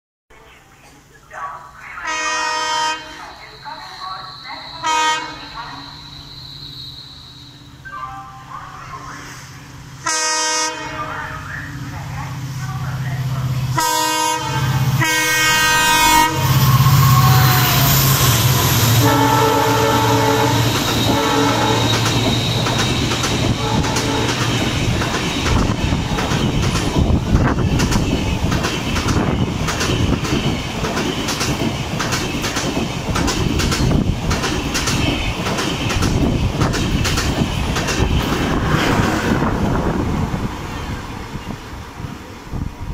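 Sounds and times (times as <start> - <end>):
locomotive horn: 2.0 - 3.3, 4.8 - 5.6, 10.0 - 11.5, 13.7 - 22.0, 23.6 - 24.5
train wheels clicking over rail joints: 20.6 - 39.2.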